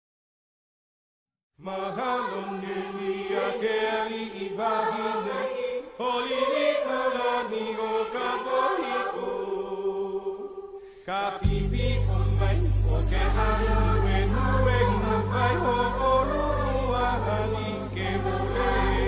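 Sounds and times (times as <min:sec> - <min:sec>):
chant-like singing voices: 0:01.6 - 0:19.0
low drone: 0:11.5 - 0:19.0.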